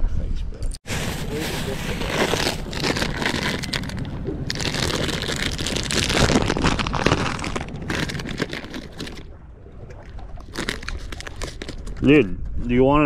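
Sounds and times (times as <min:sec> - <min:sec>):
plastic bag crinkling: 0:00.9 - 0:09.3, 0:10.4 - 0:12.0.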